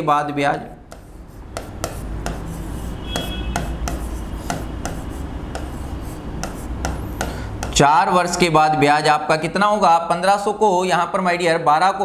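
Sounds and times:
pen tapping and scraping on glass: 0:00.9 - 0:07.8.

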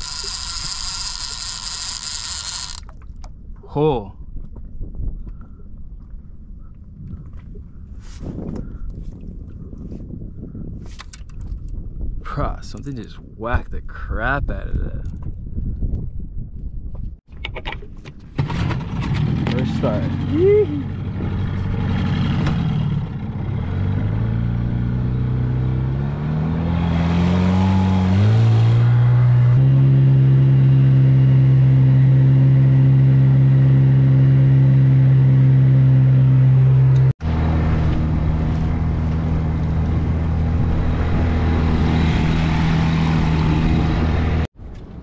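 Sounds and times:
outboard motor droning: 0:00.0 - 0:03.9, 0:18.4 - 0:44.5.

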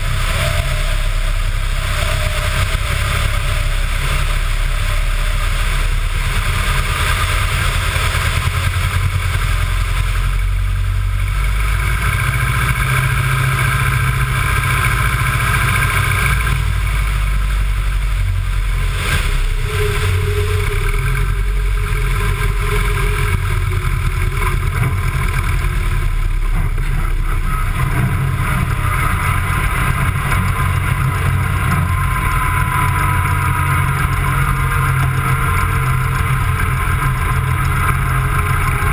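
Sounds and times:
light aircraft engine running: 0:00.0 - 0:38.9
airflow rushing: 0:15.5 - 0:34.2.

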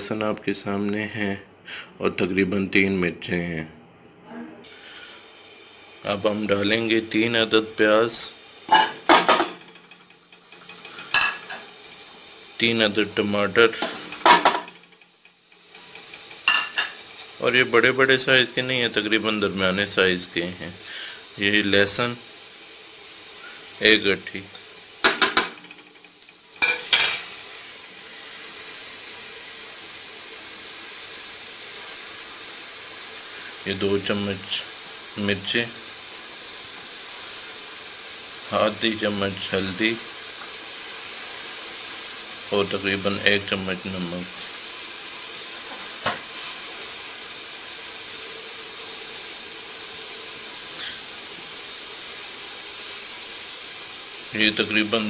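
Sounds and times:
steady hiss: 0:00.0 - 0:03.7, 0:04.6 - 0:55.0
metal kitchenware clattering: 0:08.7 - 0:11.7, 0:13.8 - 0:14.9, 0:16.4 - 0:17.0, 0:25.0 - 0:25.7, 0:26.6 - 0:27.3.

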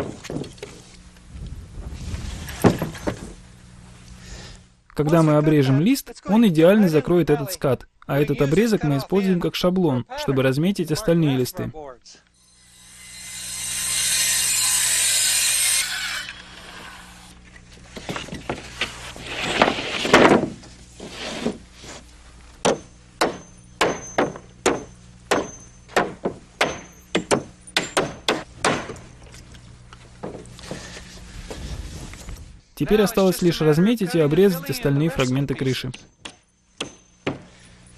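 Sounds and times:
circular saw cutting board: 0:12.4 - 0:22.0
sheet scraping and thudding: 0:17.9 - 0:22.0
hammer blows driving nails: 0:22.6 - 0:29.0, 0:35.9 - 0:37.6.

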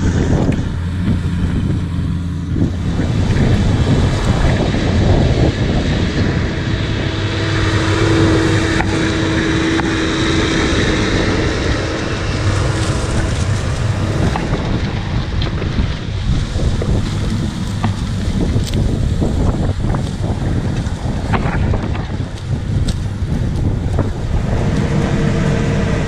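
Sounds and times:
harrow discs cutting soil: 0:00.0 - 0:26.0
tractor diesel engine under load: 0:00.0 - 0:26.0
wind buffeting microphone: 0:00.0 - 0:26.0.

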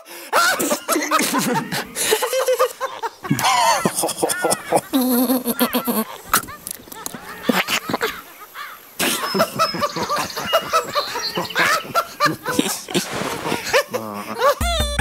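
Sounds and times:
cartoon animal voices chattering: 0:02.7 - 0:13.0
music: 0:14.6 - 0:15.0.

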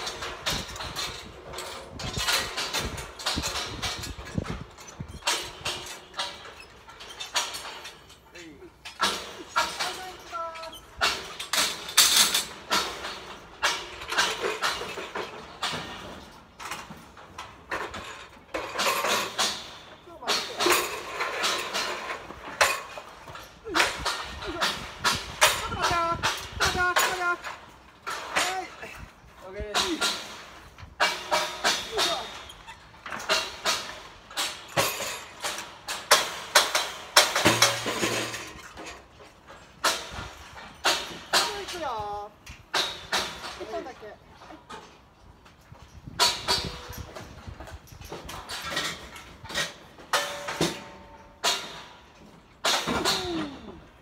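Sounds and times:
metal rattling: 0:00.0 - 0:54.0
scaffolding parts knocking: 0:00.0 - 0:54.0.

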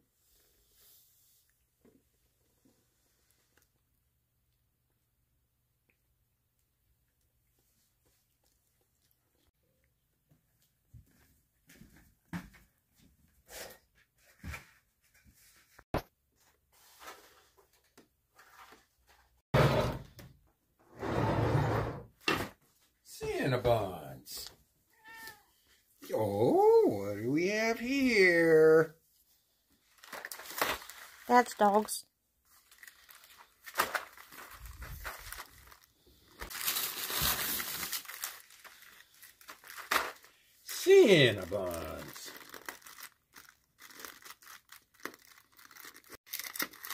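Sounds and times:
packaging crinkling and rustling: 0:29.8 - 0:46.9.

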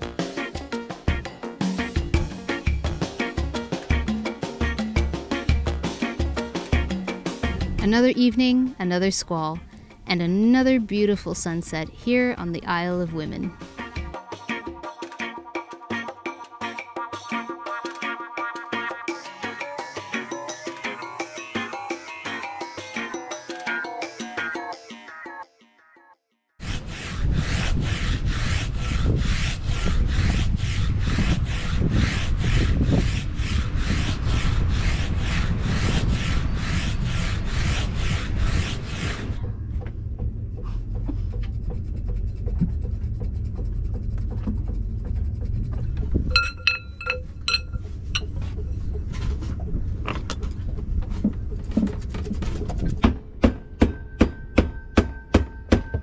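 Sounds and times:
file rasping on metal: 0:26.6 - 0:39.4.

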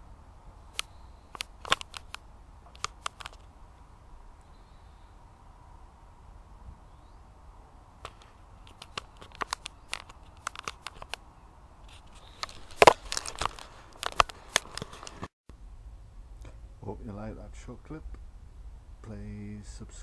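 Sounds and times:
leaves rustling and crackling: 0:07.5 - 0:15.3.

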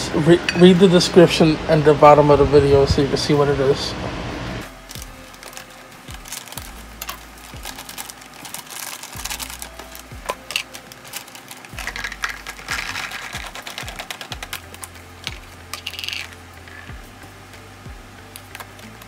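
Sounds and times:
background music with beat: 0:04.6 - 0:08.4, 0:09.1 - 0:19.0
plastic pouch crinkling: 0:04.6 - 0:17.0, 0:18.3 - 0:19.0
garlic cloves clattering into bowl: 0:06.2 - 0:16.9.

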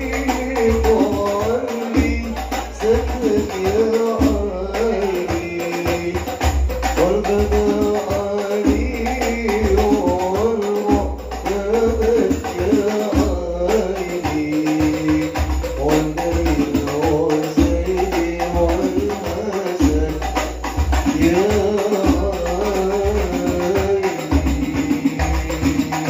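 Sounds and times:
person chanting into microphone: 0:00.0 - 0:06.4
frame drums with jingles: 0:00.0 - 0:26.0.

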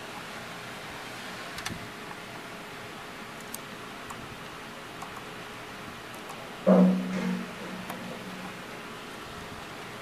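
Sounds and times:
small click: 0:01.6 - 0:01.8
low hum: 0:06.6 - 0:08.8.

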